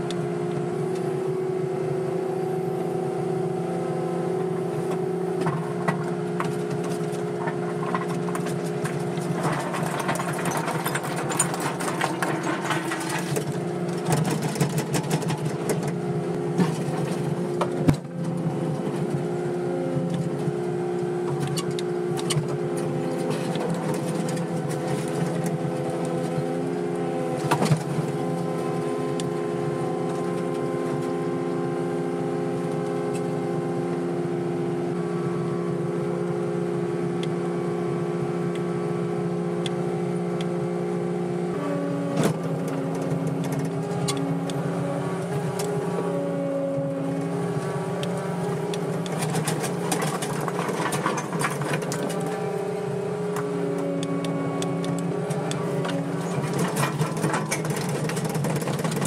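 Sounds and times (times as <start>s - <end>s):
excavator diesel engine: 0.0s - 59.0s.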